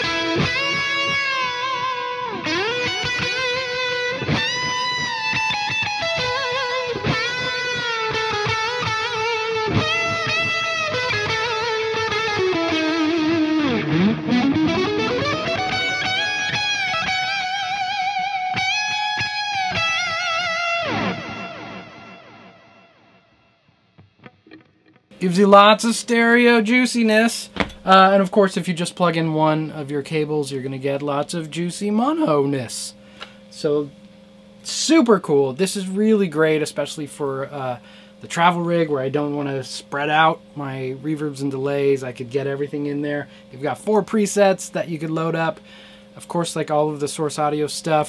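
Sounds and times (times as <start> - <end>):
electric guitar with delay: 0.0 - 23.2.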